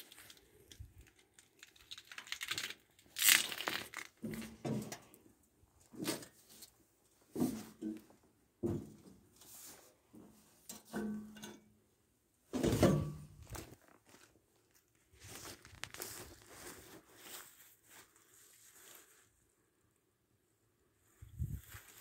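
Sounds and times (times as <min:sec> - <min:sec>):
footsteps through plants and gravel: 0:15.0 - 0:19.3, 0:21.4 - 0:22.0.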